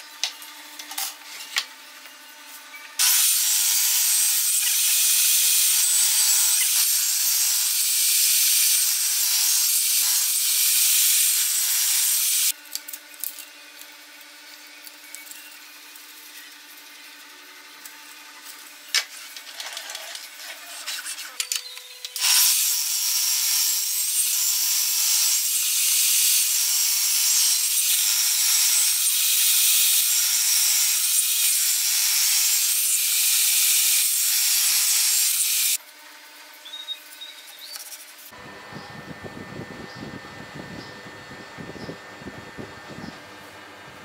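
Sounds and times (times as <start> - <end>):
table saw running: 3.0 - 12.5.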